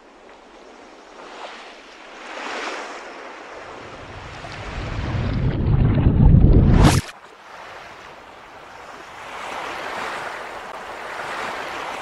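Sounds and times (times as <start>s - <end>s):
deep rumble: 4.0s - 7.0s.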